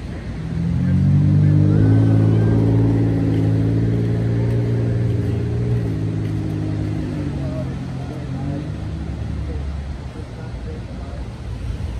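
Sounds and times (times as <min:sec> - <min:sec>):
vehicle engine running: 0:00.0 - 0:10.8.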